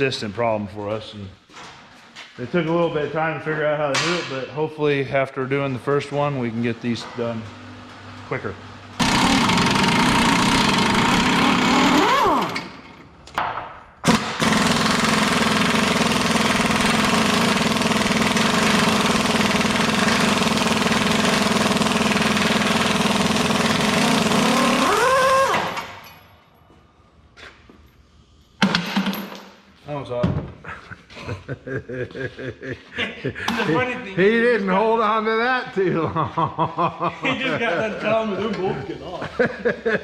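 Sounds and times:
pneumatic impact wrench hammering: 0:09.0 - 0:26.1.

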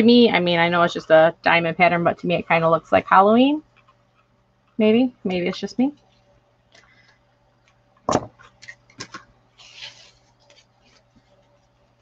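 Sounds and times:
ribbon rustling: 0:09.6 - 0:12.0.

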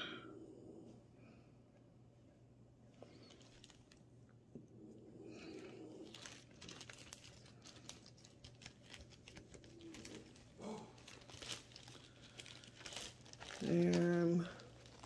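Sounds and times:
soft crackles: 0:02.9 - 0:04.4, 0:05.2 - 0:15.0
plastic bag crinkling: 0:03.1 - 0:04.0, 0:05.5 - 0:15.0.

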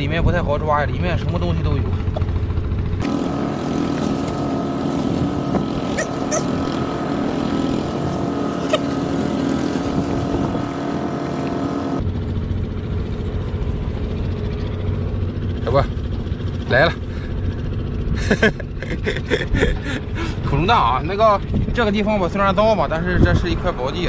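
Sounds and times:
steady engine drone: 0:00.0 - 0:24.0
wind rumble on microphone: 0:03.9 - 0:15.5, 0:19.3 - 0:24.0.

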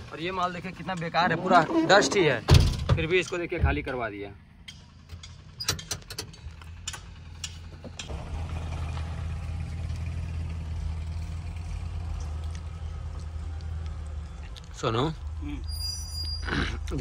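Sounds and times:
truck engine idling: 0:00.0 - 0:17.0
sharp clicks and knocks: 0:04.6 - 0:08.1.

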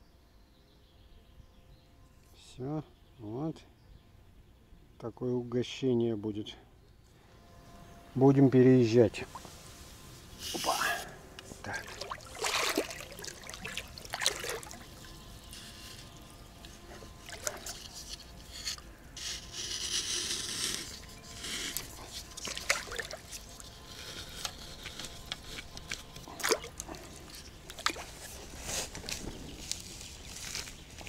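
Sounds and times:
fishing gear scraping and rustling: 0:09.3 - 0:31.0.

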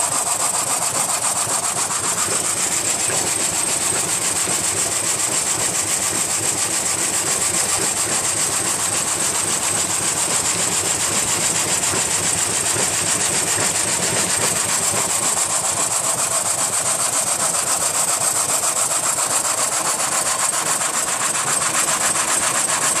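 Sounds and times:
belt drive and pulleys running: 0:00.0 - 0:23.0
saw blade rasping in wood: 0:00.0 - 0:23.0.

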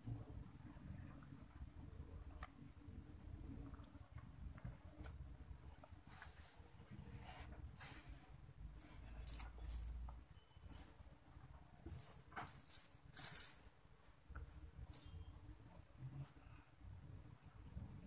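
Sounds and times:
beads clicking: 0:09.2 - 0:10.1, 0:11.8 - 0:13.7.

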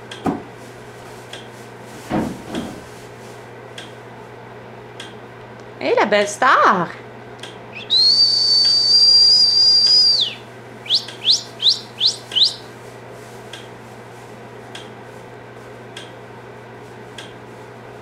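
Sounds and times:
person whistling: 0:07.8 - 0:12.7.

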